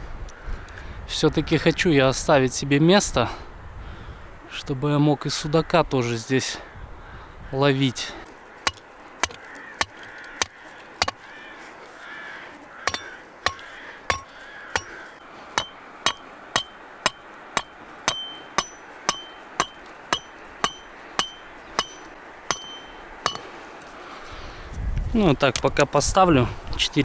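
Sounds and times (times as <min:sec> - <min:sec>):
rock striking steel stake: 0:08.6 - 0:11.2, 0:12.8 - 0:23.6.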